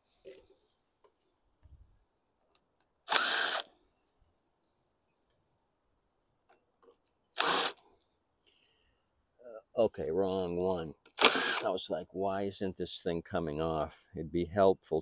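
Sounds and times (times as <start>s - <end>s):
power drill running: 3.1s - 3.7s, 7.4s - 7.8s, 11.2s - 11.7s.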